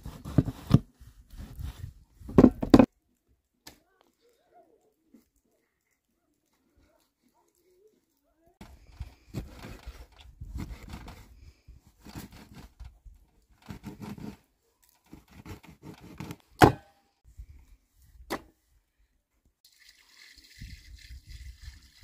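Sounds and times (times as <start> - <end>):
scraping and rustling handling noise: 0.0 - 16.6.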